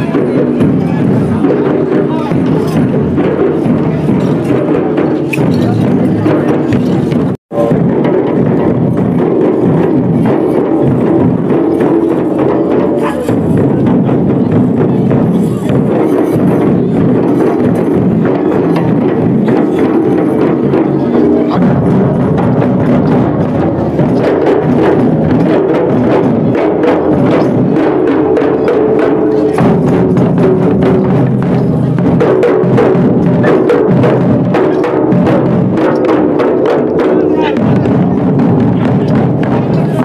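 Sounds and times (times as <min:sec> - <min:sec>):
barrel drums playing: 0:00.0 - 0:40.0
crowd voices: 0:00.0 - 0:40.0.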